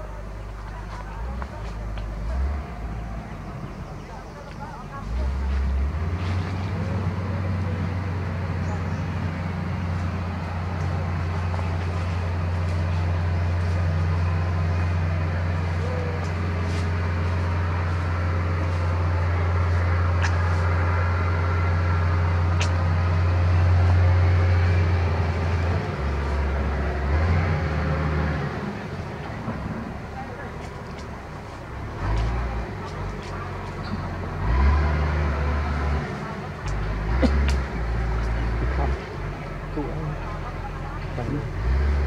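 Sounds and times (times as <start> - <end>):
low motor drone: 0.0 - 42.0
faint sharp clicks: 22.6 - 22.8, 36.6 - 38.4.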